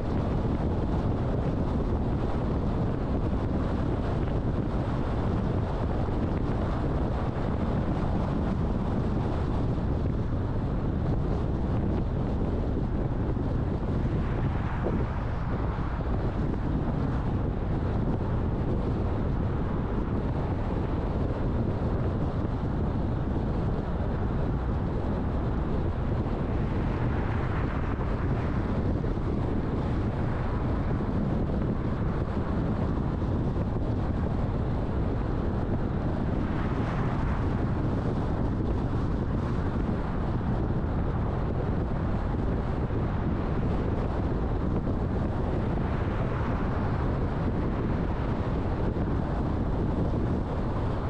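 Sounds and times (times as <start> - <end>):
car road and wind noise: 0.0 - 51.0.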